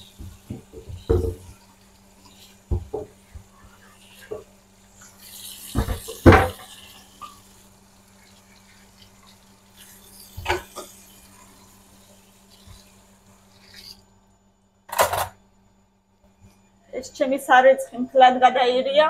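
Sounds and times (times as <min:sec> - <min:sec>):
wooden cutting boards knocking: 0:00.5 - 0:01.4.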